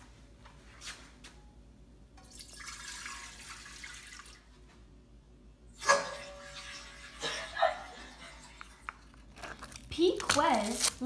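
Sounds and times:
water splashing into metal pot: 2.2s - 4.4s.

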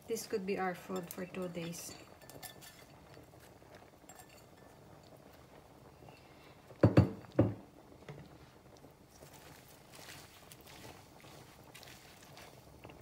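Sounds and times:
kitchenware clunks: 6.8s - 7.6s.

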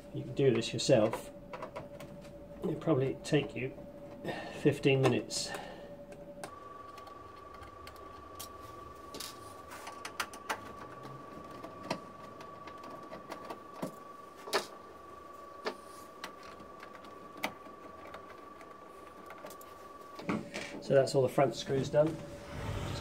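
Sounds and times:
faint steady high tone: 0.0s - 12.8s, 18.3s - 23.0s.

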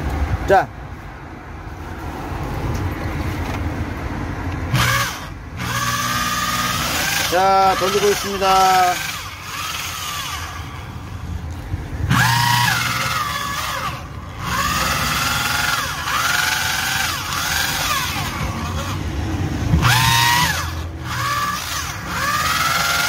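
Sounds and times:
electric drill mixing batter: 4.7s - 11.2s, 12.0s - 23.0s.

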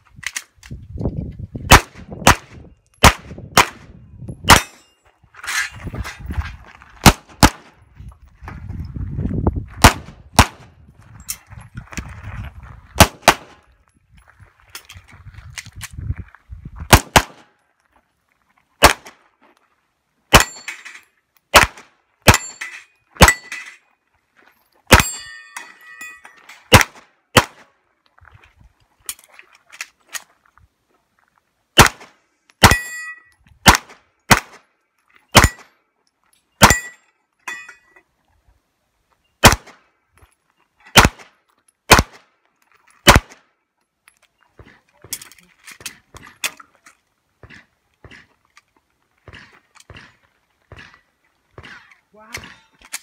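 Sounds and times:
pistol shots: 1.7s - 3.9s, 4.5s - 4.8s, 7.0s - 7.8s, 9.8s - 10.7s, 13.0s - 13.6s, 16.9s - 17.5s, 18.8s - 19.2s, 21.5s - 22.6s, 26.7s - 27.7s, 31.8s - 32.8s, 33.6s - 34.6s, 35.4s - 35.6s, 36.6s - 36.9s, 39.4s - 39.8s, 41.0s - 42.2s, 43.0s - 43.4s
bullets clanging on steel targets: 4.3s - 5.8s, 20.3s - 21.2s, 22.3s - 23.9s, 24.9s - 26.8s, 32.6s - 33.4s, 35.3s - 35.8s, 36.4s - 38.1s, 51.6s - 53.0s.

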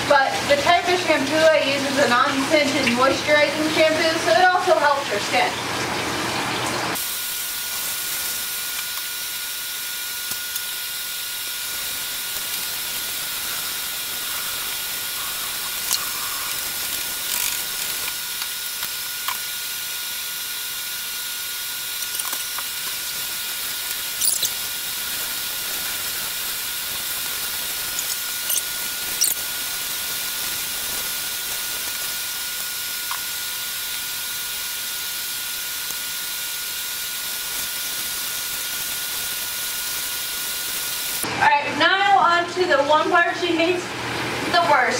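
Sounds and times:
shower water spraying: 0.1s - 41.2s.

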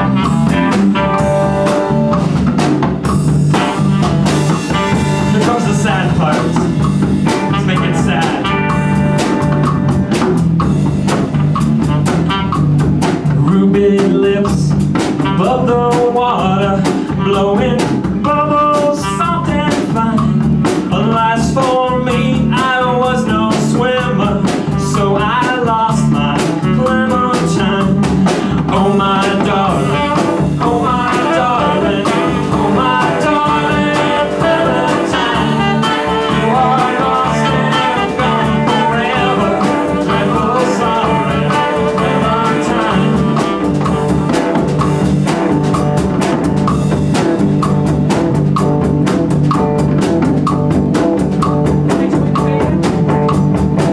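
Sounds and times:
saxophone lead line: 0.0s - 13.2s, 14.0s - 21.3s, 22.0s - 53.9s
drum kit: 0.0s - 53.9s
guitar: 0.0s - 53.9s
hand drums: 26.4s - 53.9s.

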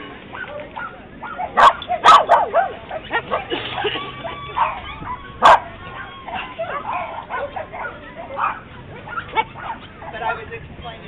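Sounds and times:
dog barking sharply: 0.3s - 2.8s
small dogs yipping and whining: 0.3s - 10.2s.

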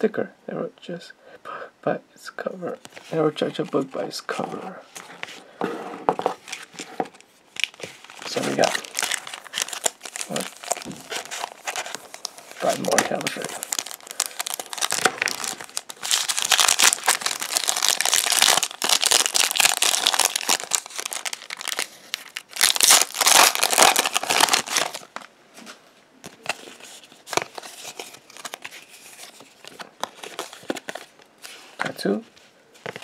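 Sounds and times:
cards rustling and clicking: 6.1s - 25.3s, 26.2s - 31.9s, 32.8s - 33.0s
foil pack crinkling and tearing: 6.5s - 25.3s.

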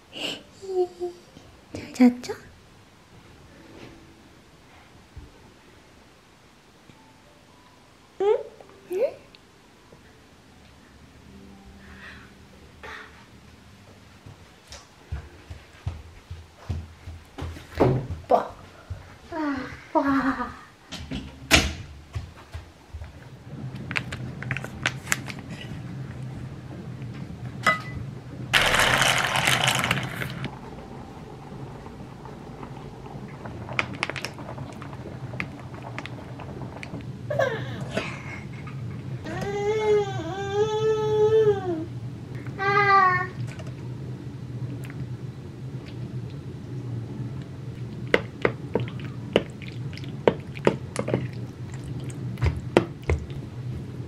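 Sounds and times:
steady low hum: 9.3s - 54.0s
dry pasta rattling into pot: 28.6s - 30.5s
wet squishing of pasta: 47.8s - 53.5s.

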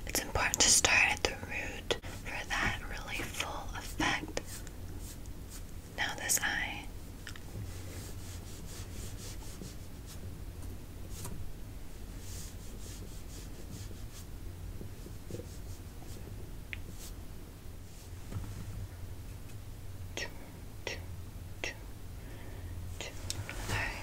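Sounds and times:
steady low hum: 0.0s - 24.0s
brush bristles rubbing microphone: 3.8s - 5.7s, 7.6s - 10.3s, 12.1s - 14.3s.

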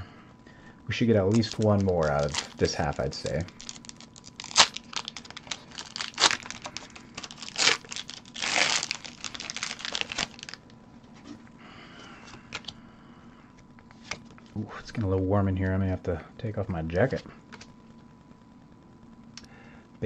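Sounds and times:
foil wrapper crinkling: 1.2s - 10.7s
wrapper tearing rip: 1.3s - 10.6s.

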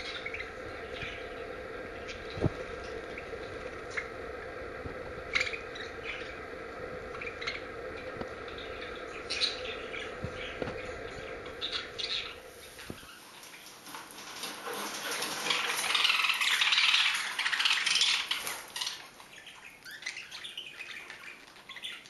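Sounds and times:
budgerigars chirping: 0.0s - 4.1s, 8.5s - 13.2s, 15.2s - 22.0s
steady low hum: 0.0s - 13.8s.

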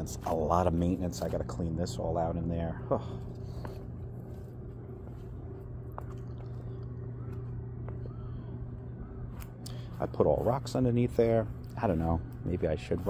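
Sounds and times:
steady low hum: 0.0s - 13.0s
crackly handling noise: 3.1s - 10.0s.

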